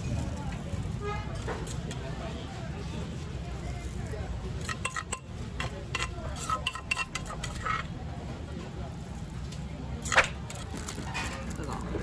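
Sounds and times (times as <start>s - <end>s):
plastic bag crinkle: 10.5s - 12.0s.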